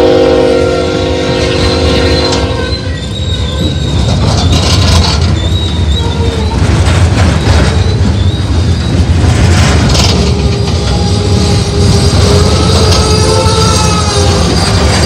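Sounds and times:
locomotive horn: 0.0s - 3.8s, 10.3s - 15.0s
train wheels rumbling on rail: 0.0s - 15.0s
high-pitched wheel squeal: 0.6s - 9.2s, 10.0s - 15.0s.

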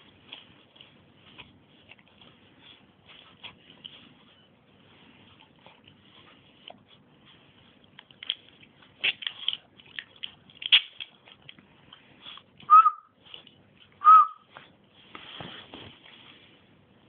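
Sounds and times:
puppies scuffling: 14.5s - 16.8s.

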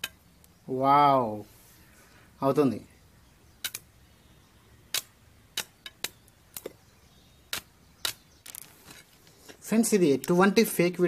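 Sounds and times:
electric arc crackling snaps: 3.6s - 3.9s, 4.9s - 6.7s, 7.5s - 9.1s.

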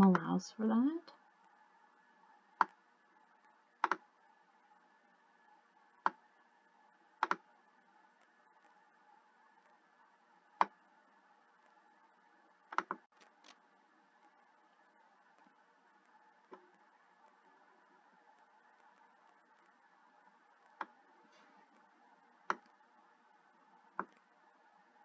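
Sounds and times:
computer mouse clicking: 2.6s - 2.8s, 3.4s - 4.2s, 6.0s - 6.3s, 7.1s - 8.8s, 10.5s - 10.9s, 12.6s - 13.6s, 15.3s - 17.4s, 20.5s - 21.1s, 21.7s - 22.8s, 23.8s - 24.4s.

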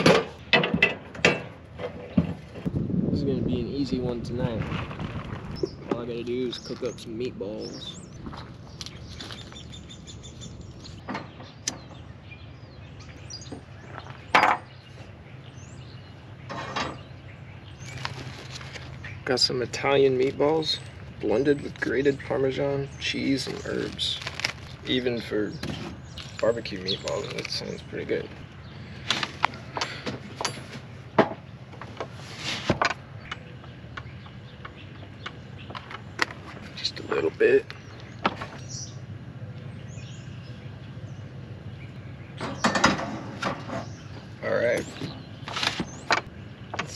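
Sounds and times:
objects knocking and clattering: 0.0s - 2.7s
birds chirping: 0.0s - 46.9s.

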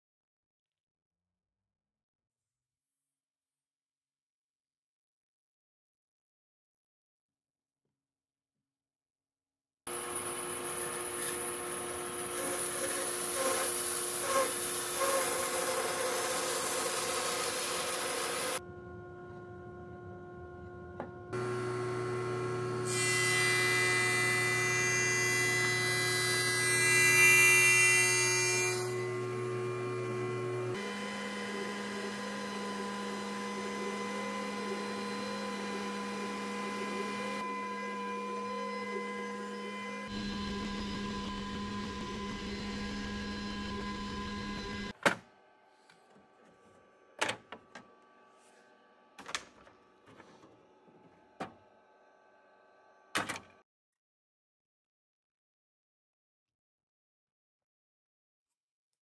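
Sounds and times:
jointer cutting board: 9.9s - 18.6s, 20.4s - 45.2s
jointer humming: 9.9s - 27.2s, 28.9s - 44.9s
shop machine sound: 9.9s - 53.6s
laser cutter humming: 14.2s - 24.7s, 29.0s - 37.4s.

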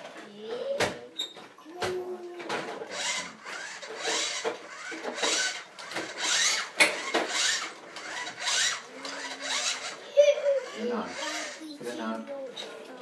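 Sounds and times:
toy truck wheels rasping: 2.5s - 12.0s.

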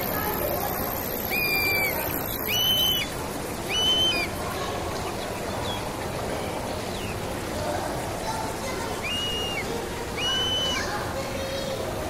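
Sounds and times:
murmur of voices: 0.0s - 12.0s
high whistle-like tones: 1.0s - 3.1s, 3.7s - 4.3s, 9.0s - 10.9s.

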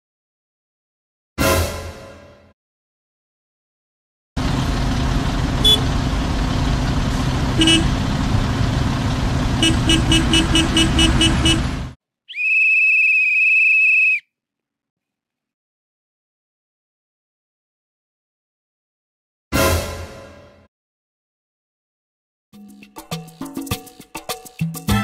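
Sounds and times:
traffic noise: 4.4s - 12.0s
car horn tooting: 5.6s - 5.9s, 7.6s - 8.0s, 9.6s - 11.8s
long whistle blast: 12.3s - 14.2s.

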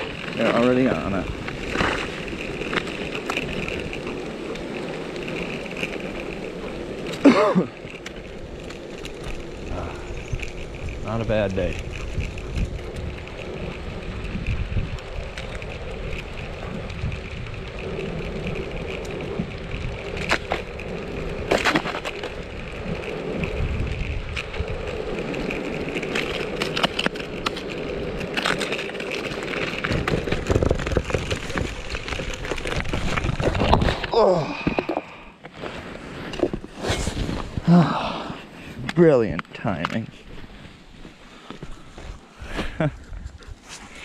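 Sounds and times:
sharp cracks and clicks: 0.0s - 34.2s
skateboard wheels rumbling on pavement: 0.0s - 44.0s.

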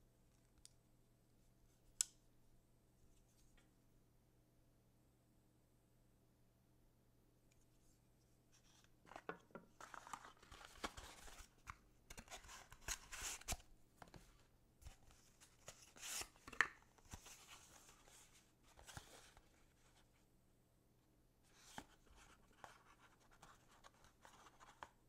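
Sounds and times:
packaging rustling and scraping: 8.6s - 13.6s.

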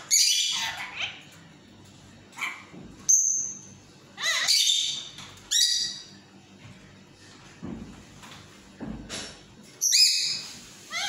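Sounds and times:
parakeet calling and chattering: 0.0s - 1.4s, 2.3s - 6.2s, 9.8s - 11.0s.

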